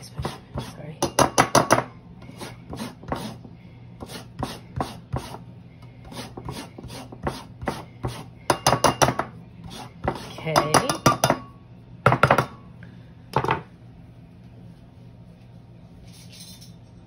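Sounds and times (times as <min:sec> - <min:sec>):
peel rasping on a grater: 0:00.0 - 0:00.9, 0:02.2 - 0:03.4, 0:04.0 - 0:05.4, 0:06.0 - 0:08.3, 0:09.6 - 0:10.4.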